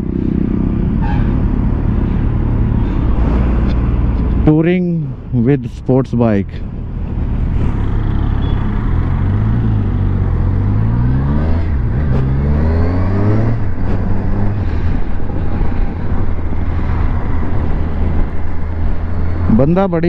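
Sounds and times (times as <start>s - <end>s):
motorcycle engine accelerating: 7.0s - 19.7s.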